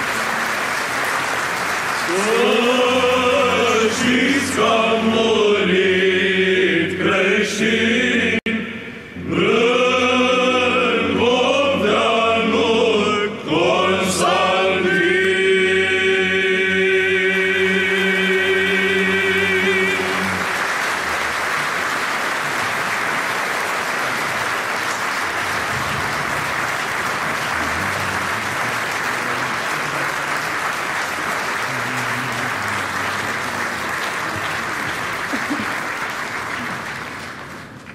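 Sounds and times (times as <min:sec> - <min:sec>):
audience applause: 0:00.0 - 0:04.8, 0:17.3 - 0:37.9
male choir singing: 0:02.0 - 0:21.0.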